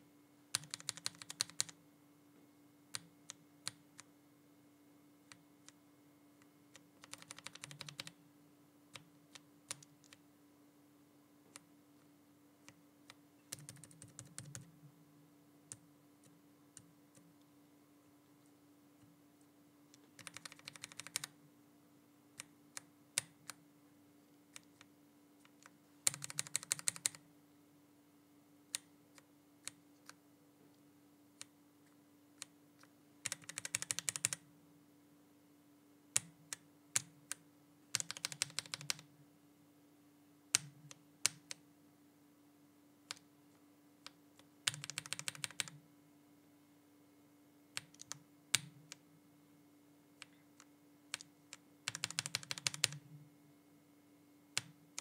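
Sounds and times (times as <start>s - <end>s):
faint steady hum: 0.0s - 55.0s
keyboard typing: 0.5s - 1.8s, 6.7s - 8.2s, 8.9s - 10.2s, 12.6s - 14.7s, 19.9s - 21.4s, 24.5s - 27.2s, 32.4s - 34.4s, 36.2s - 39.1s, 44.0s - 45.8s, 47.8s - 49.0s, 50.2s - 53.0s.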